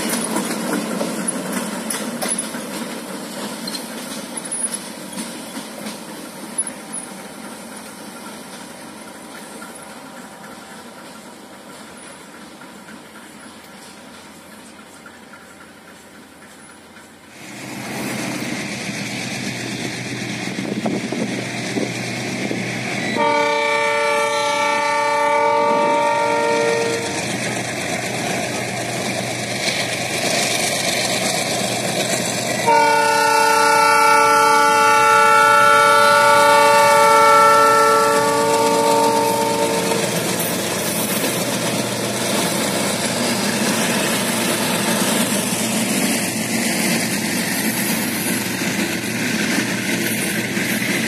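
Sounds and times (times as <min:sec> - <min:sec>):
train running noise: 0:00.0 - 0:51.0
locomotive air horn blasts: 0:23.2 - 0:27.2, 0:32.6 - 0:40.3.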